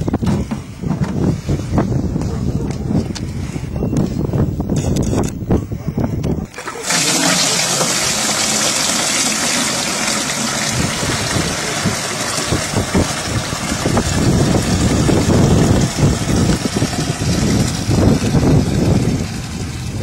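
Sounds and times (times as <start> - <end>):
water gushing into a jerrycan: 6.4 - 20.0.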